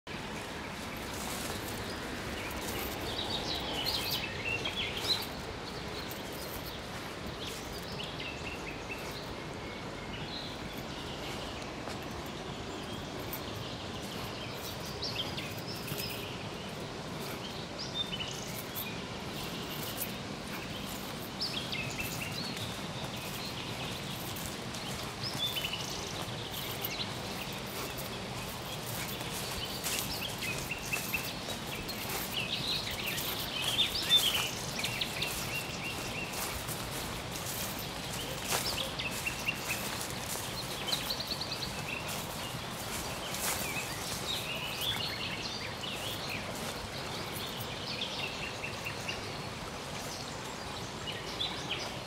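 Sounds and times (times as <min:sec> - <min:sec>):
footsteps on dry forest path: 0:00.0 - 0:52.0
small birds chirping: 0:00.1 - 0:52.0
steady outdoor hiss: 0:00.1 - 0:52.0.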